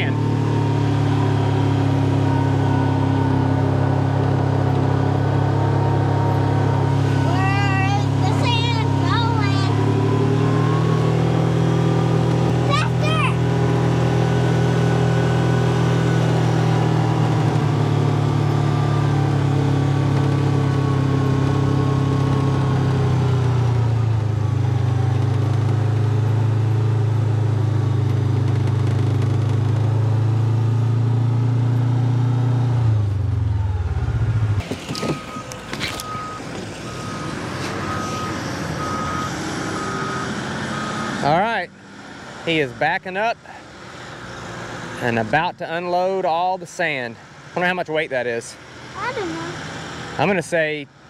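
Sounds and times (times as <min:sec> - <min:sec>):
truck reversing alarm beeps: 0:00.0 - 0:12.2, 0:33.3 - 0:41.3
utv engine running: 0:00.0 - 0:51.0.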